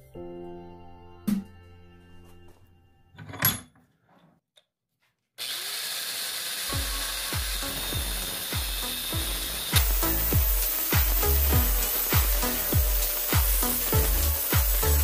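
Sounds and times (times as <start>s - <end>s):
angle grinder grinding steel: 5.4s - 15.0s.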